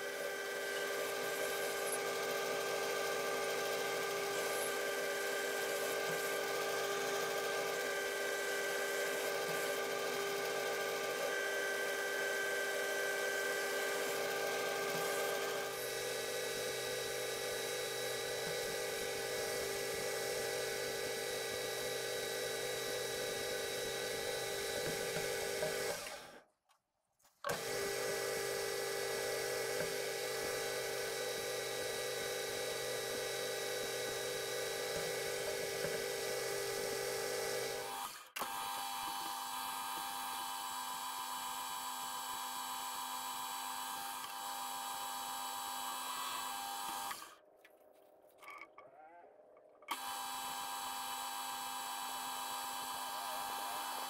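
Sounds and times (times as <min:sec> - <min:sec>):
metal lathe motor whining: 0:00.0 - 0:26.3, 0:49.9 - 0:54.0.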